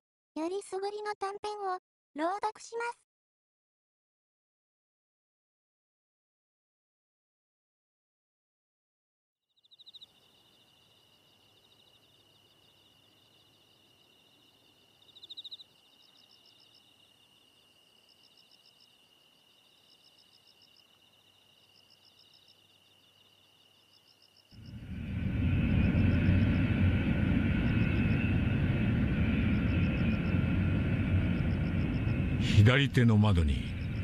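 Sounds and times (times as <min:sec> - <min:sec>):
insects chirping: 0:09.6 - 0:34.0
loud low rumble: 0:24.6 - 0:34.0.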